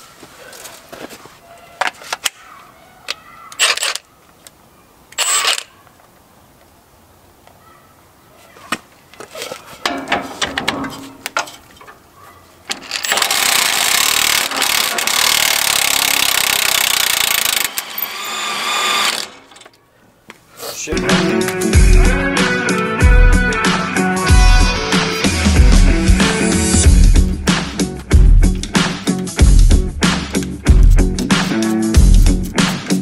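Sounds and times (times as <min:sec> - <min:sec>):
tools clanking on metal: 0:09.4 - 0:12.0.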